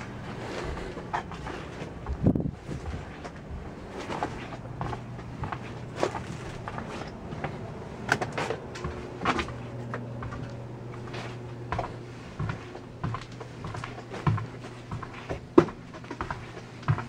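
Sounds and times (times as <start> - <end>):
footsteps in cabin aisle: 0.0 - 17.0
steady low hum: 0.0 - 17.0
irregular thuds: 11.7 - 17.0.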